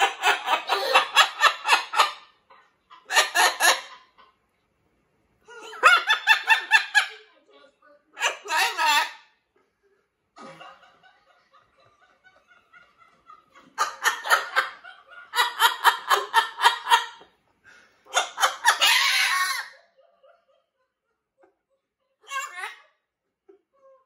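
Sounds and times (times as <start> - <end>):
parrot mimicking laughter: 0.0 - 2.4, 3.0 - 4.2, 5.5 - 7.2, 8.2 - 9.4, 13.8 - 17.3, 18.1 - 20.0, 22.2 - 24.0
parrot chattering softly: 5.5 - 7.3.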